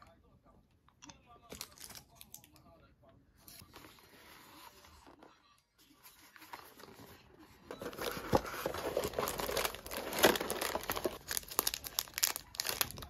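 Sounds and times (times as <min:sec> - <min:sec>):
crinkling wrapping: 0:06.0 - 0:13.0.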